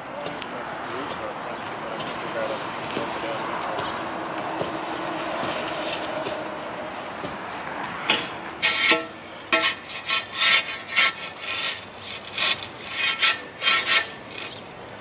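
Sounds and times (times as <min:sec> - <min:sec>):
metal shovel scraping in wheelbarrow: 0:08.1 - 0:14.7.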